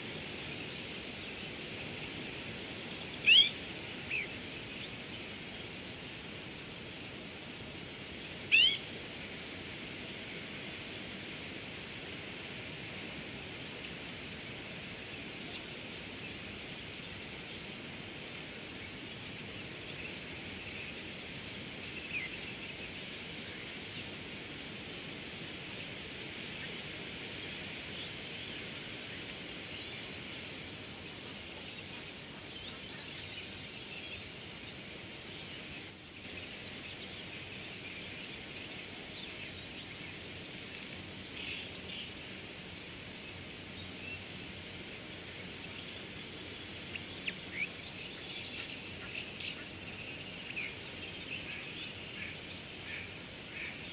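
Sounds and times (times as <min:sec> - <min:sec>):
insect chorus trilling: 0:00.0 - 0:53.9
faint bird chirps: 0:03.2 - 0:04.3, 0:08.5 - 0:08.8.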